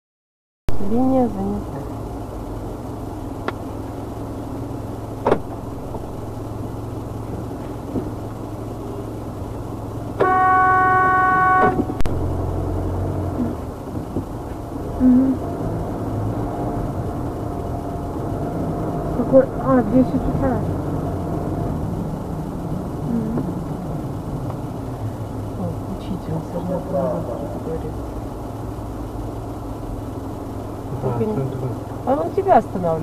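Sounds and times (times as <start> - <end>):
car cabin hum: 0.7 - 33.0
car horn blast: 10.2 - 12.5.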